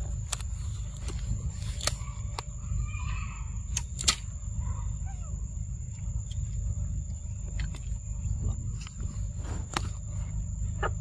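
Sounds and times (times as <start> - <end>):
steady high-pitched whine: 0.0 - 11.0
low rumble on microphone: 4.3 - 11.0.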